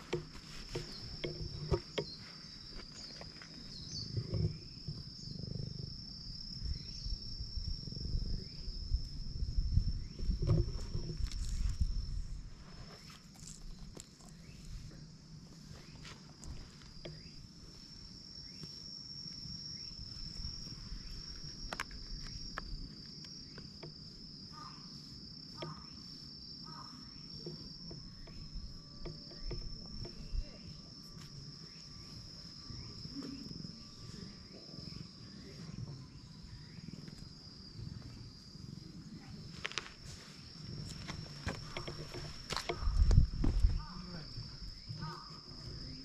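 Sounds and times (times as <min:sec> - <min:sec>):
hand rubbing cat fur: 0:00.0 - 0:03.0
insects trilling: 0:00.0 - 0:46.0.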